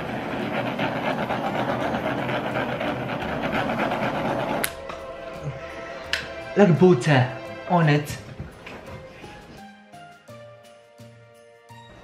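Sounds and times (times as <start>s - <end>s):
butane torch hissing: 0.0s - 6.8s.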